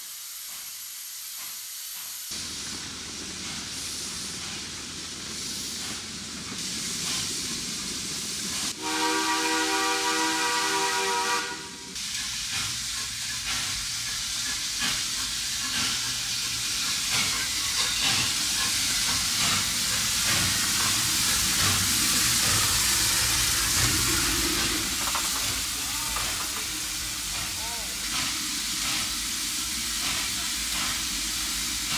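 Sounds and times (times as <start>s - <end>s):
steam hissing: 0.0s - 31.9s
steam locomotive whistle: 8.8s - 12.0s.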